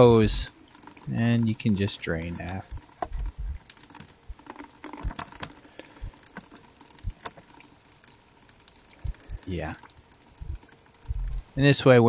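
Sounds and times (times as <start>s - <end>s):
gasoline dripping into plastic tub: 0.0s - 11.6s
soft thumps: 2.7s - 5.5s, 10.4s - 11.5s.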